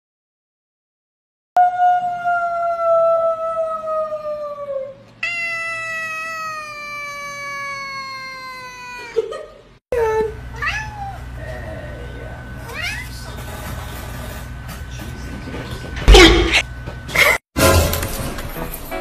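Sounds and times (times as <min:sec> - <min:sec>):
cat giving long meows: 0:05.2 - 0:09.1, 0:10.6 - 0:11.2.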